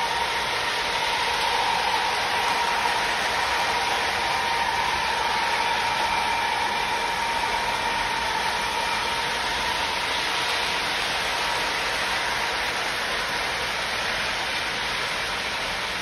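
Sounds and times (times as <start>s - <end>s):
model train wheels whirring: 0.0s - 16.0s.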